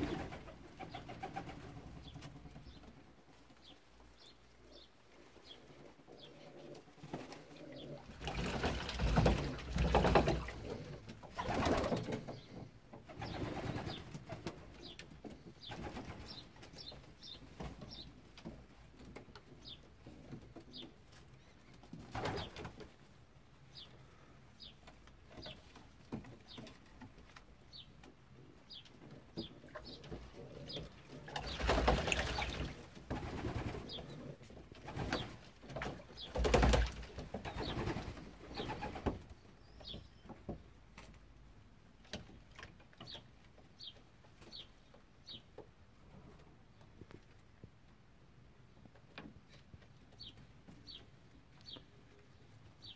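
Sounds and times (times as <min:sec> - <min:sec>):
pigeons flapping and splashing: 0:00.0 - 0:02.6, 0:07.0 - 0:12.4, 0:13.1 - 0:14.8, 0:15.6 - 0:16.8, 0:21.8 - 0:22.9, 0:29.8 - 0:34.1, 0:34.7 - 0:39.3
pigeons cooing: 0:04.8 - 0:12.5, 0:29.1 - 0:35.3.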